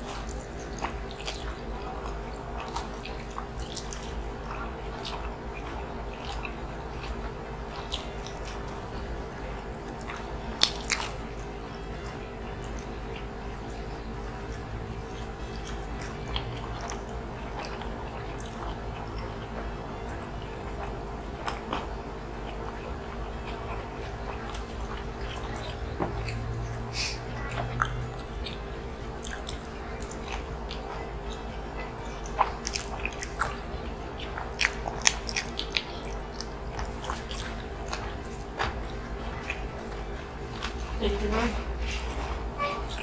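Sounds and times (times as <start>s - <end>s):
chewing and eating mouth sounds: 0.0s - 43.0s
steady low hum: 0.0s - 43.0s
mouth clicks and smacks: 23.5s - 41.0s.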